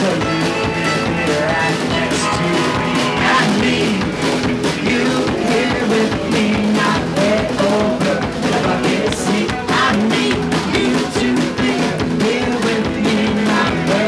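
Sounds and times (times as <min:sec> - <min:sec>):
strummed mandolin and guitar: 0:00.0 - 0:06.7
person singing lead vocal: 0:00.0 - 0:14.0.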